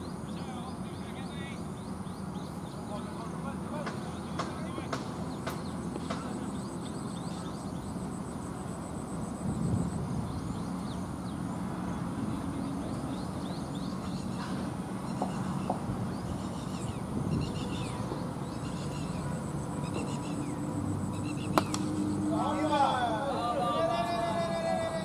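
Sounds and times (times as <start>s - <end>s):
birds chirping: 0.0s - 25.0s
steady background hiss: 0.0s - 25.0s.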